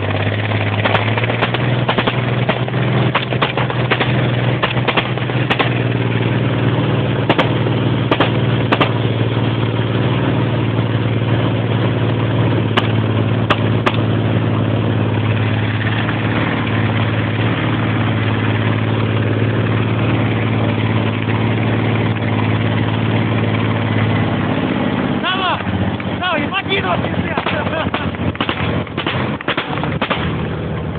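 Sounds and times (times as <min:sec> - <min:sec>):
military vehicle engine running: 0:00.0 - 0:30.9
sharp cracks or knocks: 0:00.7 - 0:05.9, 0:07.3 - 0:09.0, 0:12.7 - 0:14.1, 0:27.4 - 0:30.4.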